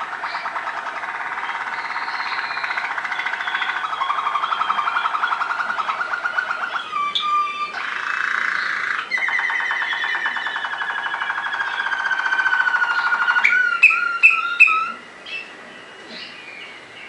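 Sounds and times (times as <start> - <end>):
canary singing trills: 0.0 - 17.0.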